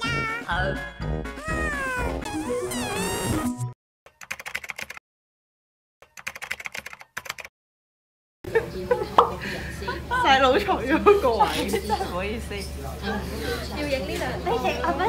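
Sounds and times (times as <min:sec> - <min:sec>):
music with warbling voice-like tones: 0:00.0 - 0:01.6
keyboard typing clicks: 0:06.0 - 0:07.5.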